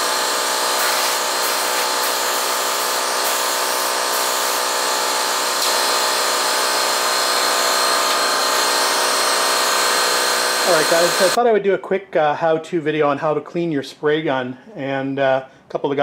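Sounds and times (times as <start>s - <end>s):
motor running with hiss: 0.0s - 11.4s.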